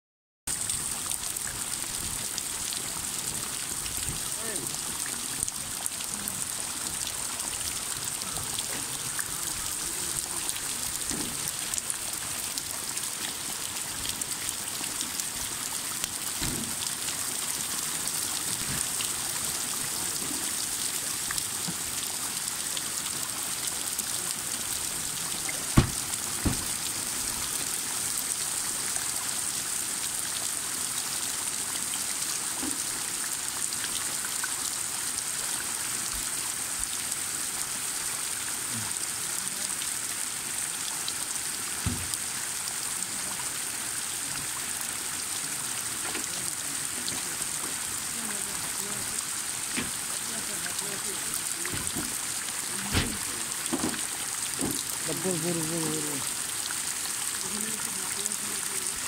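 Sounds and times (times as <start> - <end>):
heavy rain on water: 0.5 - 59.0
sharp knocks: 25.8 - 26.7.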